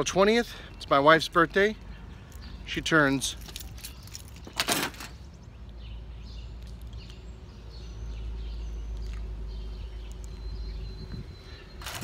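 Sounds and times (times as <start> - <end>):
faint bird chirps: 7.8 - 12.0.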